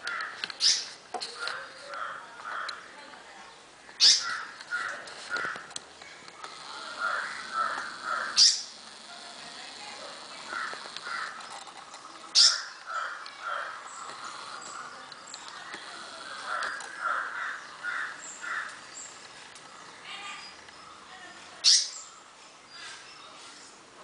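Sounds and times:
loud sharp bird calls: 0.0s - 2.9s, 3.9s - 23.6s
birds calling: 0.0s - 23.9s.

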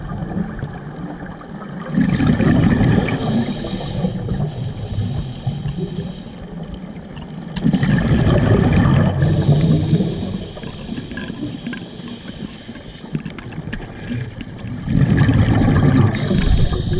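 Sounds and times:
bubbling regulator exhalations: 1.8s - 6.1s, 7.6s - 12.6s, 14.0s - 16.9s
regulator hiss: 2.6s - 6.6s, 9.2s - 13.1s, 16.2s - 16.9s.

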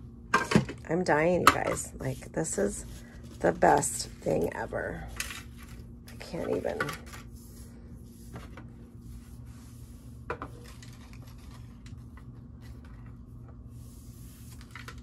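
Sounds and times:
steady low hum: 0.0s - 15.0s
paper rustling: 10.5s - 13.2s.

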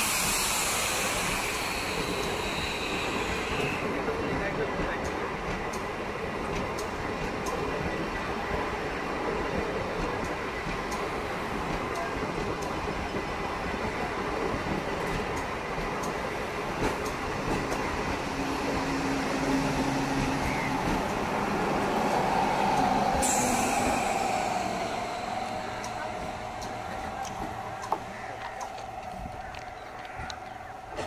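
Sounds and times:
high hiss: 0.0s - 3.8s, 20.5s - 29.4s
train wheels rumbling on rail: 0.0s - 31.0s.

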